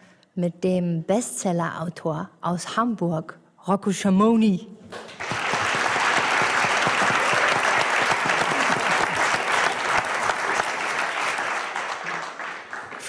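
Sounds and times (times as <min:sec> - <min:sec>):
audience applauding: 0:05.0 - 0:13.0.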